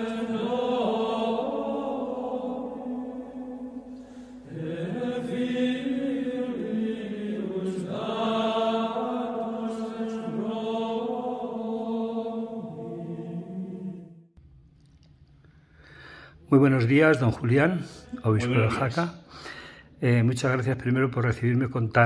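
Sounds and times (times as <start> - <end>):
sung vocal chant: 0.0 - 14.1.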